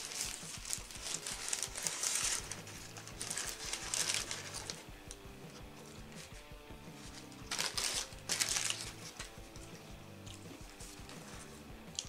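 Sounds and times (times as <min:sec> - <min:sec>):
paper wrapper crinkling: 0:00.0 - 0:04.8, 0:07.0 - 0:09.7.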